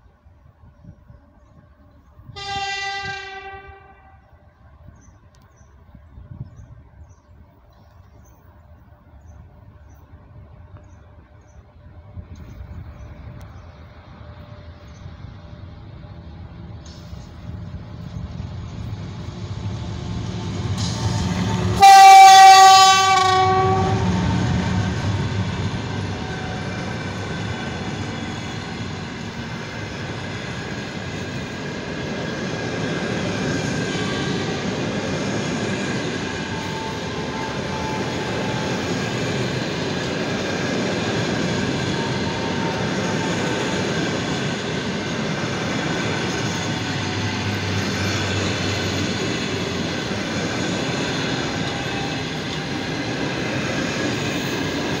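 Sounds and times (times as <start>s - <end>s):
train coaches passing on rails: 0.0s - 55.0s
locomotive air horn blast: 2.3s - 4.4s, 20.8s - 24.7s.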